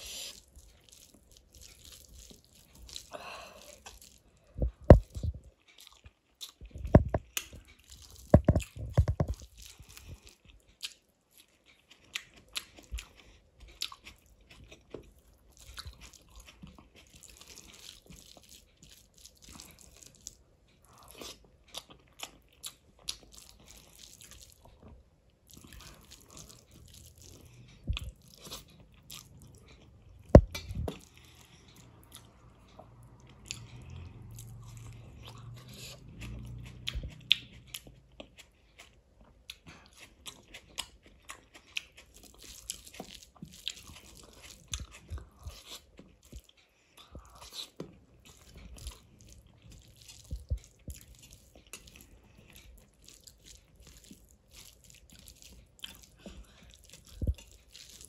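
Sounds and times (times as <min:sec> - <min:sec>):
person chewing: 0:00.0 - 0:58.0.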